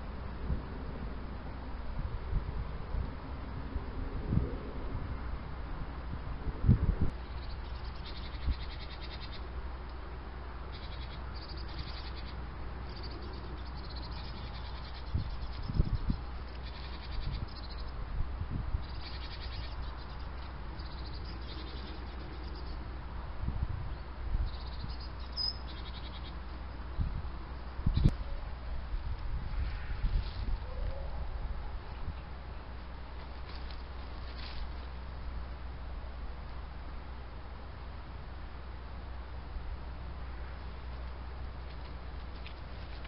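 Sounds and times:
wind gusts thumping on microphone: 0.0 - 8.8, 12.6 - 22.4, 23.0 - 25.5, 26.1 - 35.0
steady low hum: 0.0 - 43.0
faint high chirping: 10.7 - 18.0, 23.9 - 28.6.

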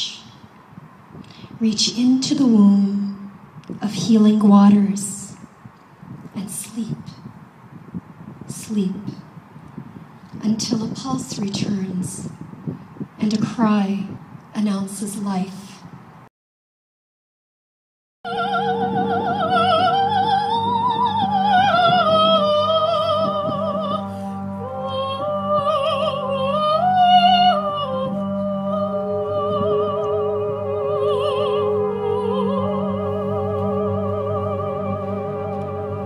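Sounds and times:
operatic soprano singing: 18.3 - 36.0.

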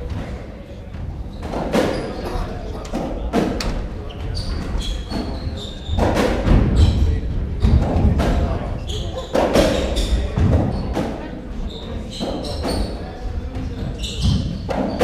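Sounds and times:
shoes squeaking on wooden floor: 1.1 - 2.9, 3.6 - 7.8, 11.6 - 15.0.

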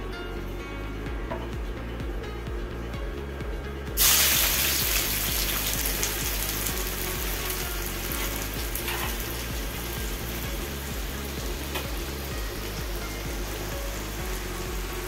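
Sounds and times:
onion sizzling in hot oil: 4.0 - 15.0.

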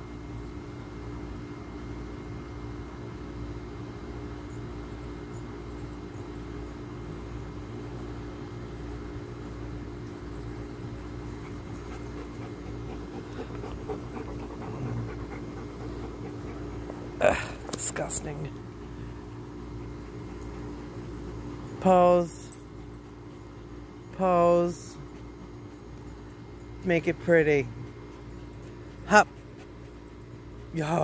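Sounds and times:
low machine hum: 0.0 - 31.0.

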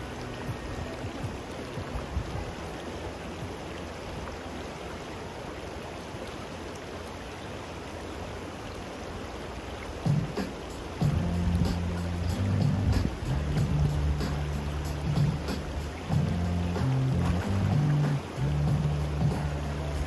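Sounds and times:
river flowing over rocks: 0.0 - 20.0.

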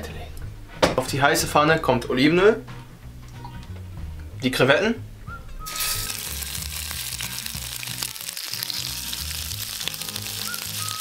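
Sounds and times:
shrimp sizzling in oil: 5.7 - 11.0.

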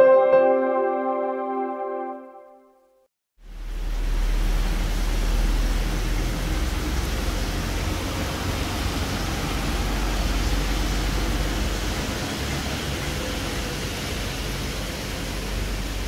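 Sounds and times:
rain and tyres on wet road: 3.4 - 16.0
truck engine rumble: 3.8 - 16.0.

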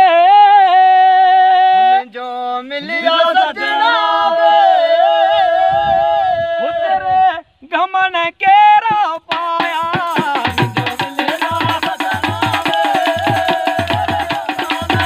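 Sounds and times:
man singing: 0.0 - 15.0
dholak drum and percussion: 8.8 - 15.0.

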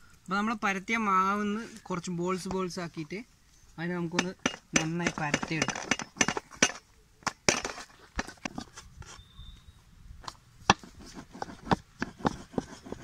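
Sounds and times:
rolling pin knocking metal tray: 4.1 - 6.8.

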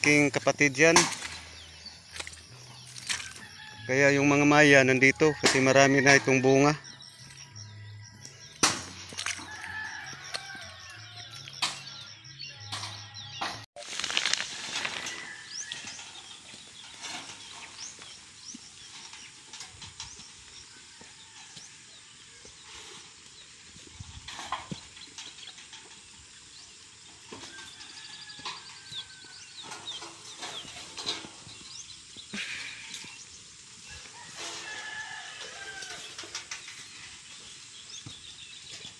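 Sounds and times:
knocks and rustles: 12.7 - 20.5, 27.3 - 31.8
small birds chirping: 21.9 - 34.0, 35.6 - 38.9.

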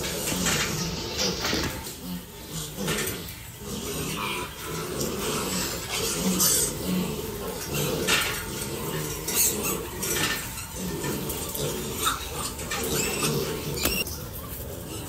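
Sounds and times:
piglets grunting: 0.0 - 15.0
piglets squealing: 5.4 - 14.1.

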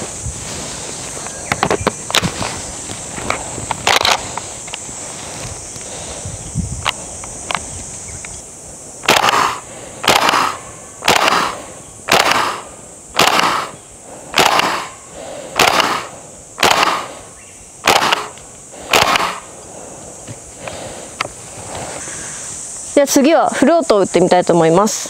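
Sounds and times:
airsoft rifle shots: 9.0 - 17.2, 17.8 - 19.5.

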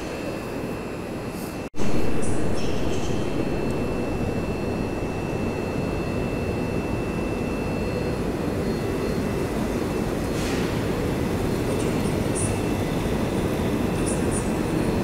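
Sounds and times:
faint high whine: 0.0 - 15.0
train rumbling: 1.8 - 12.5.

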